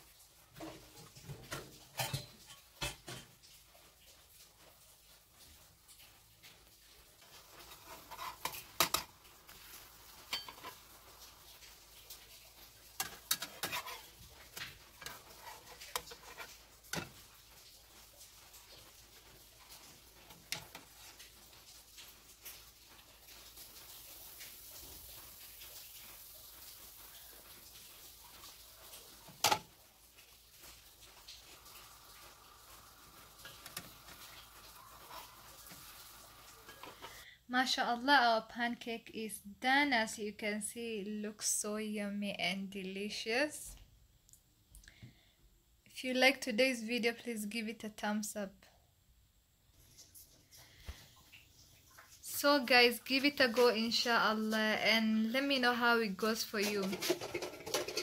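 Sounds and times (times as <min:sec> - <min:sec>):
batter sizzling in a frying pan: 0:00.0 - 0:38.0, 0:49.7 - 0:58.0
metal spatula scraping frying pan: 0:00.6 - 0:03.4, 0:07.2 - 0:09.2, 0:10.3 - 0:10.9, 0:13.0 - 0:17.2, 0:56.6 - 0:58.0.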